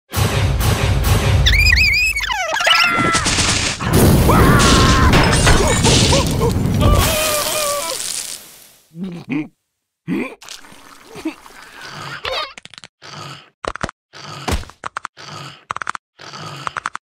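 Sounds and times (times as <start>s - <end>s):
squeaky cartoon character cries: 1.5s - 3.2s, 12.1s - 12.6s
loud crash with clatter: 2.9s - 7.7s.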